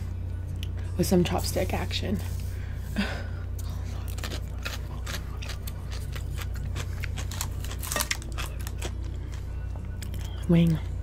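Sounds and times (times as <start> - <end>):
chewing crunchy food: 3.6 - 11.0.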